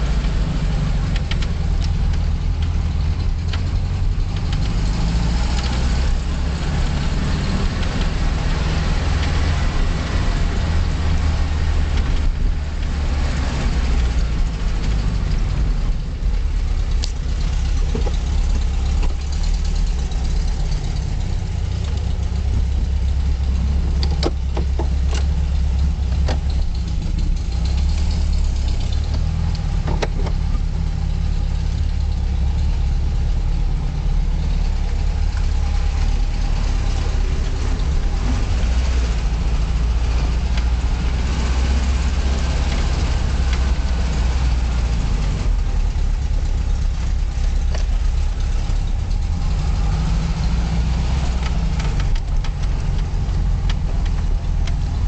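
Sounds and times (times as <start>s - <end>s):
car engine and road noise: 0.0s - 55.0s
sharp clicks: 51.2s - 55.0s.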